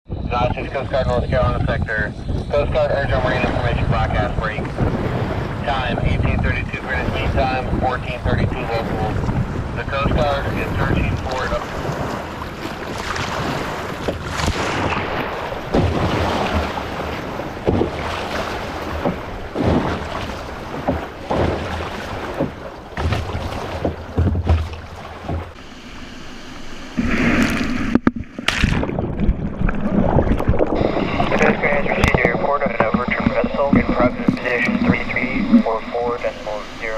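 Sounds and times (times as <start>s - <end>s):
wind rumbling on microphone: 0.1s - 25.7s, 27.0s - 36.9s
water slapping against kayak hull: 0.4s - 26.0s, 27.0s - 36.9s
wave breaking over kayak: 0.4s - 36.9s
sharp knocks: 17.6s - 25.6s.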